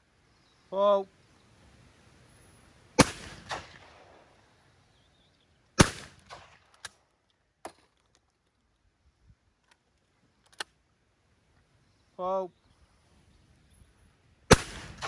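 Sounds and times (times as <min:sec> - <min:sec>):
shotgun shots with echo: 0:03.0 - 0:04.2, 0:05.8 - 0:06.6, 0:14.5 - 0:15.0.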